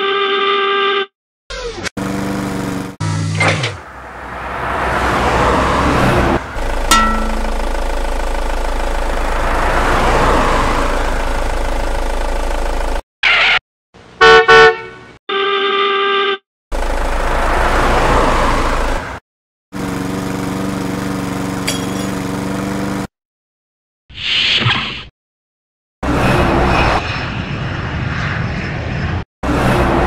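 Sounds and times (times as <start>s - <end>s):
engine hum: 2.0s - 13.0s, 16.7s - 23.1s
brief steady tone: 6.9s - 8.0s
vehicle horn honks: 14.2s - 16.4s.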